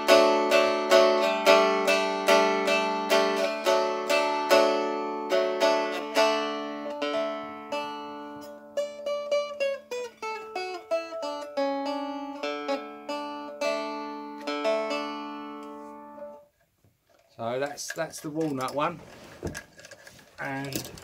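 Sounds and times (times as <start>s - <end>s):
plucked strumstick melody: 0.0s - 16.6s.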